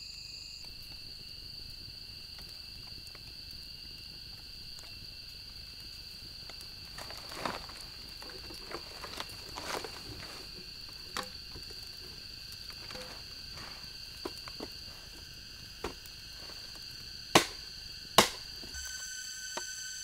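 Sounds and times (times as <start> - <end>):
insects droning: 0.0 - 20.0
sharp cracks: 17.3 - 18.7.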